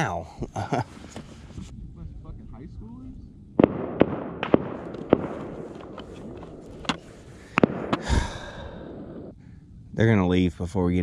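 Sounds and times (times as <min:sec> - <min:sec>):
rifle shots with echo: 0:03.6 - 0:09.3.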